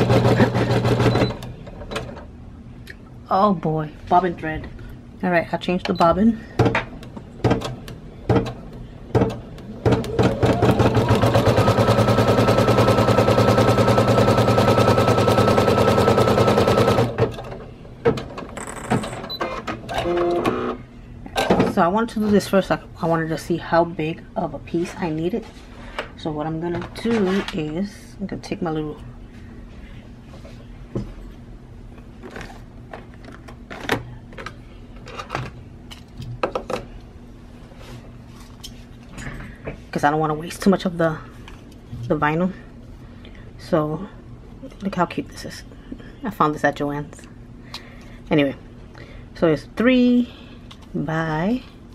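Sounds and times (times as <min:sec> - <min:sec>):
embroidery machine stitching rattle: 0:10.0 - 0:17.3.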